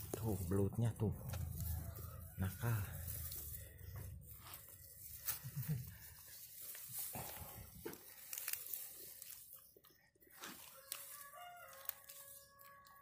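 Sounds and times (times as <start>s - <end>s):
grass and straw rustling: 0.0s - 13.0s
small stem snaps: 8.0s - 9.4s.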